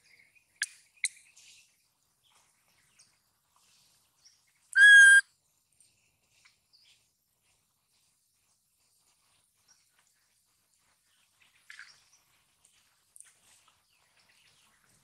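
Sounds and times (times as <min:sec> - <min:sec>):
faint chirps and ticks: 0:00.0 - 0:15.0
infant monkey coo call: 0:04.8 - 0:05.2.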